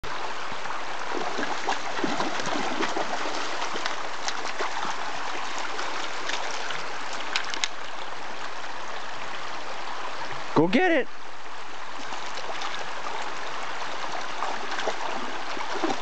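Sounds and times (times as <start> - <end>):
creek running over stones: 0.0 - 16.0
dog splashing in water: 1.1 - 6.7, 14.1 - 16.0.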